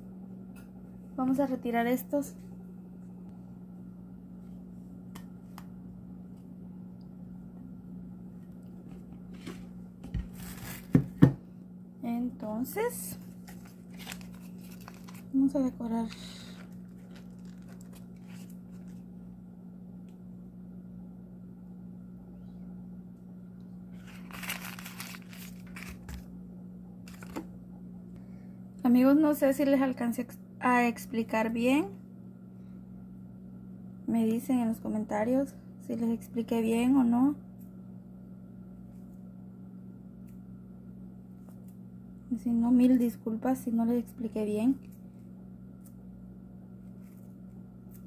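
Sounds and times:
steady low hum: 0:00.0 - 0:48.0
soft rustling handling sounds: 0:13.0 - 0:19.1, 0:24.0 - 0:26.2, 0:46.8 - 0:48.0.

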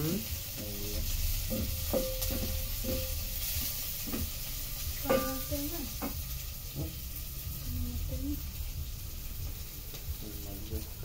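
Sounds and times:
food sizzling in a pan: 0:00.0 - 0:11.0
utensil knocking and scraping pan: 0:00.9 - 0:04.4, 0:05.0 - 0:06.2.

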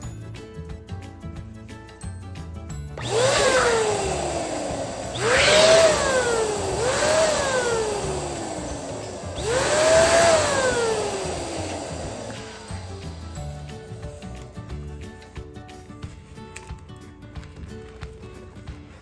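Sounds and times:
electric balloon pump whining: 0:03.0 - 0:15.4.

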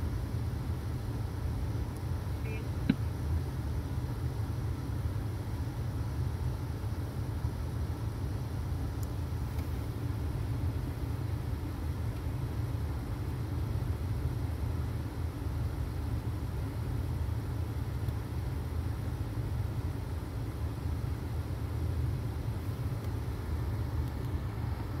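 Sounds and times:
car engine running: 0:00.0 - 0:25.0.

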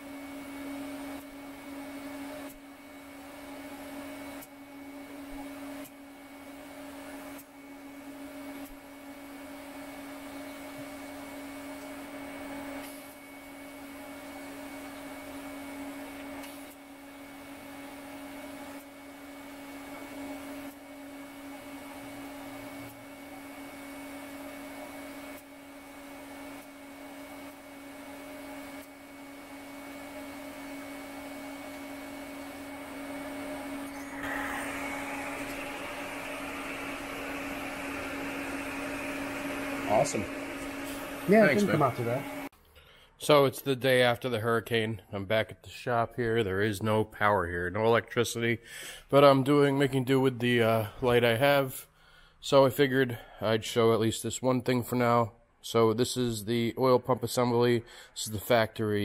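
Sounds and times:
welder buzzing hum: 0:00.0 - 0:42.5
welding arc hiss: 0:00.7 - 0:42.5.

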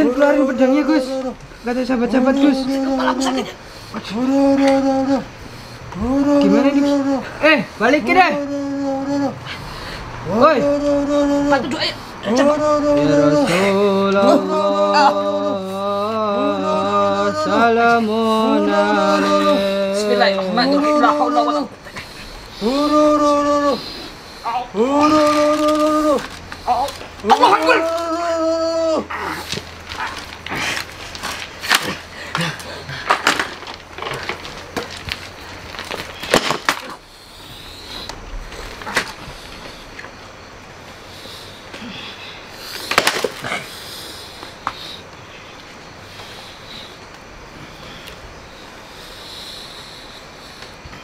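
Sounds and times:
person singing wailing chant: 0:00.0 - 0:21.8, 0:22.5 - 0:29.5.

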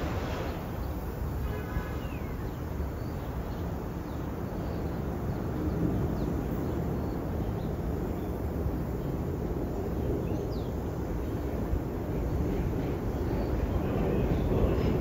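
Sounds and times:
train wheels rumbling on rails: 0:00.0 - 0:01.4, 0:11.0 - 0:15.0.

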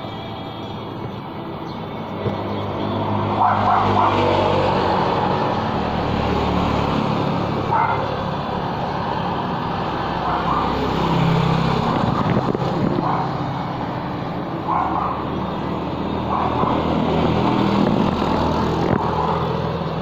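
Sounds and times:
steady traffic noise: 0:00.0 - 0:20.0.

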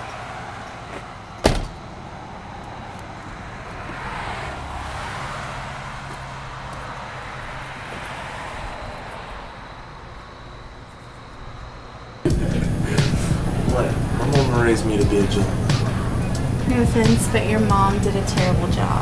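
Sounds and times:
road traffic noise: 0:00.0 - 0:19.0
sharp knock: 0:01.4 - 0:01.7.

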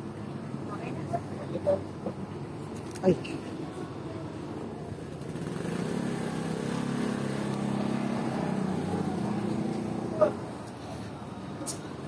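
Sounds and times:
small motorcycle engine running: 0:05.0 - 0:10.3.

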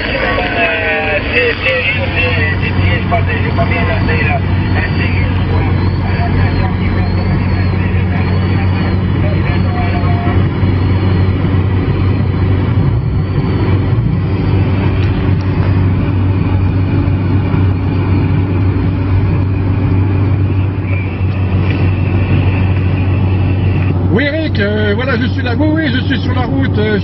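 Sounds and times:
car engine and road drone: 0:00.0 - 0:27.0.

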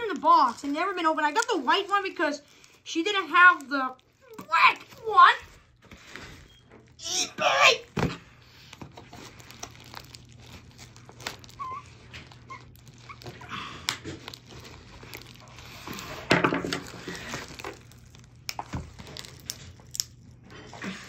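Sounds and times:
packaging crinkling and rustling: 0:00.0 - 0:21.0
packaging tearing: 0:08.4 - 0:21.0.

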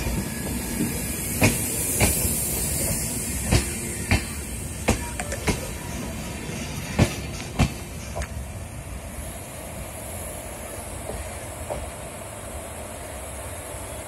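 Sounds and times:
train rumble: 0:00.0 - 0:14.0
train wheels clacking over rail joint: 0:00.4 - 0:05.7, 0:07.0 - 0:08.4.

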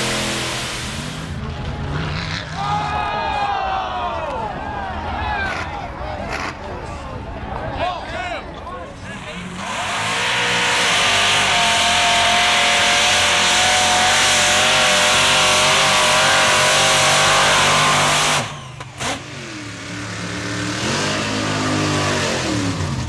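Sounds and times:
truck engine revving through mud: 0:00.0 - 0:02.6, 0:09.3 - 0:23.0
truck engine revving hard: 0:00.0 - 0:02.9, 0:09.2 - 0:23.0.

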